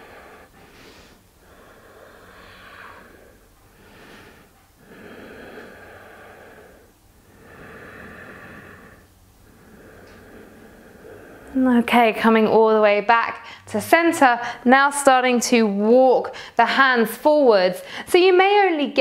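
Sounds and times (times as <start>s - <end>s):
woman breathing slowly: 0.0s - 11.7s, 13.4s - 13.7s, 16.3s - 16.6s, 17.8s - 18.1s.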